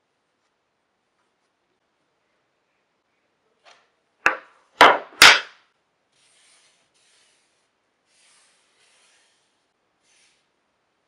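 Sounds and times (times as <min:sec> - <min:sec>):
knocks on wooden frame: 0:04.3 - 0:05.5.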